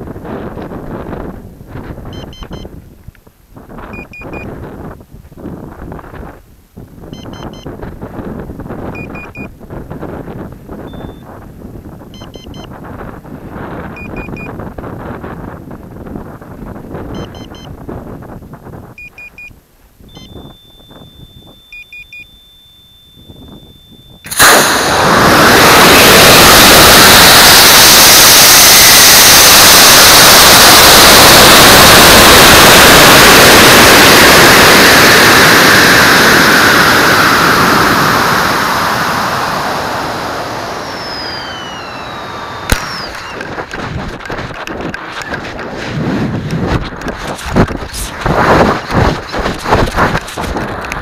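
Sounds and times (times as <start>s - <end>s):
electronic beeps: 2.2s - 2.7s, 10.9s - 11.3s, 12.2s - 12.7s, 20.1s - 24.3s
steady high tone: 20.2s - 43.8s
ejection charge pop: 24.2s - 34.7s, 40.6s - 45.7s
rocket motor rushing roar: 24.2s - 51.0s.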